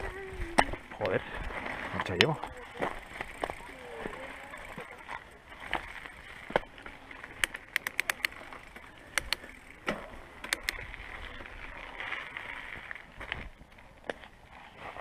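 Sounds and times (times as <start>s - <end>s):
bike gear clicks and knocks: 0.5s - 11.0s.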